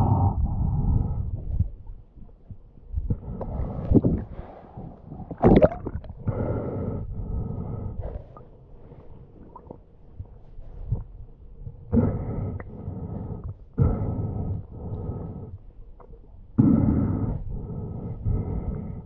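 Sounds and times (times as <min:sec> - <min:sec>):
muffled underwater sloshing: 0:00.0 - 0:18.9
water splash: 0:05.4 - 0:06.0.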